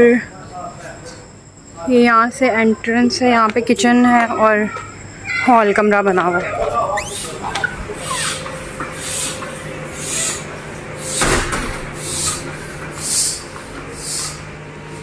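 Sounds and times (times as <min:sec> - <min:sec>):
hand air pump hissing: 0:06.9 - 0:15.0.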